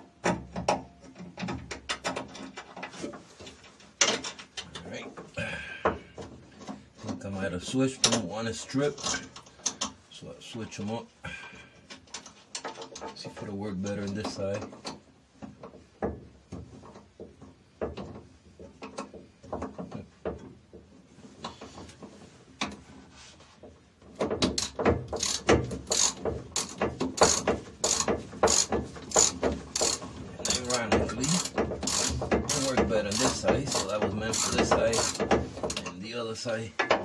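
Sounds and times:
ratchet wrench clicking: 24.6s - 35.2s.

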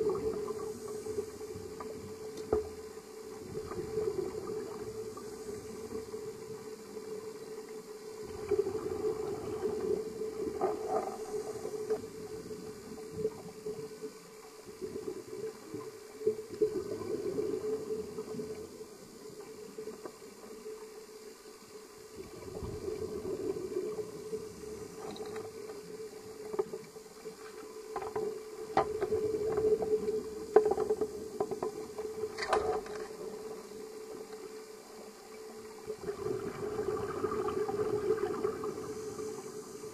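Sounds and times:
underwater exhalation bubbling: 35.9s - 39.7s.

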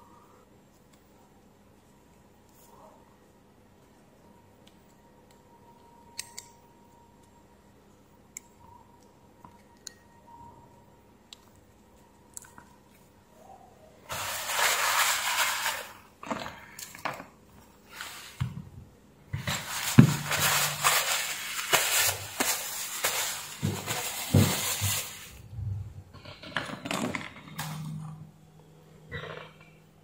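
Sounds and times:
cloth rag rustling and rubbing: 19.4s - 25.3s.

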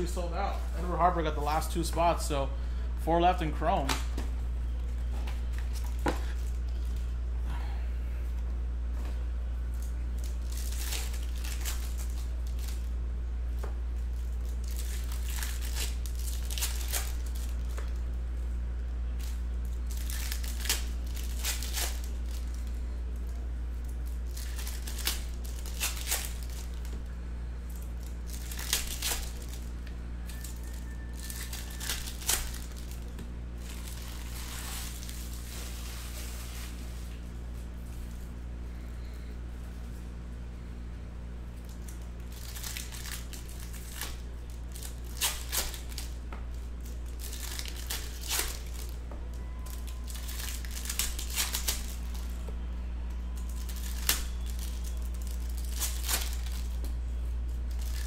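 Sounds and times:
steady low hum: 0.0s - 58.0s
foil wrappers crinkling and tearing: 9.7s - 13.0s, 14.0s - 18.2s, 19.1s - 38.2s, 41.6s - 58.0s.

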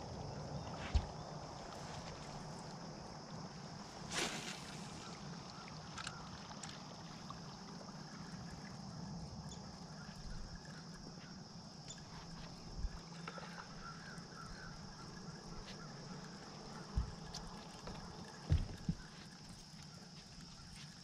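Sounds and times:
faint chirps: 9.4s - 21.0s.

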